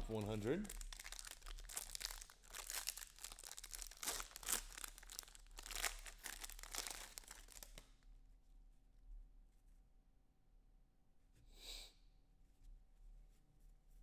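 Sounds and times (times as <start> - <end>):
foil wrapper crinkling: 0.0 - 7.9.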